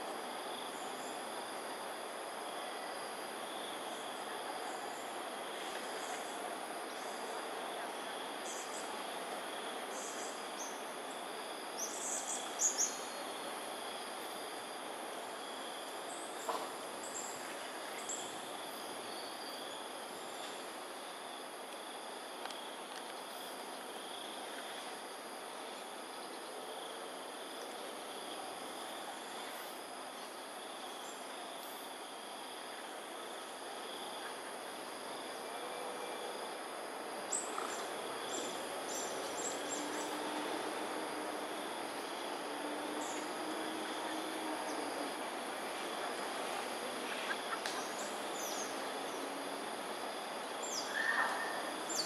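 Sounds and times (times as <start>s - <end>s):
insect chorus: 0.0s - 52.0s
outdoor background noise: 0.0s - 52.0s
insect trilling: 50.6s - 52.0s.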